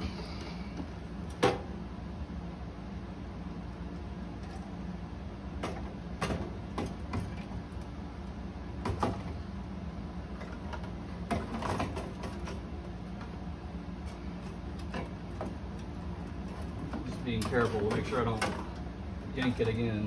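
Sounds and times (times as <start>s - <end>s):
steady low hum: 0.0s - 20.0s
parts clunking and rattling: 10.3s - 13.4s.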